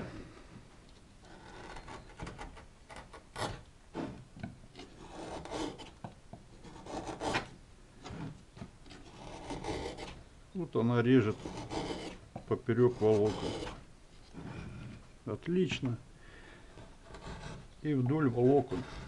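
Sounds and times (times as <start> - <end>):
chisel scraping wood: 1.2 - 10.2, 11.0 - 15.1, 16.6 - 19.0.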